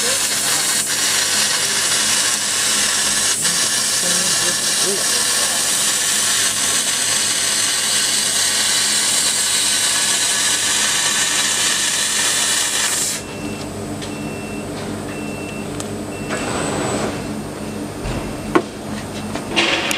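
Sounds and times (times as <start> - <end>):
laser cutter hiss: 0.0 - 13.3
machine humming: 0.0 - 19.7.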